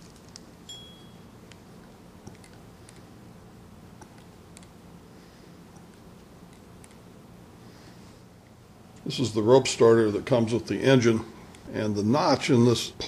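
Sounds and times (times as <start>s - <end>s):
high metallic ring: 0.7s - 1.4s.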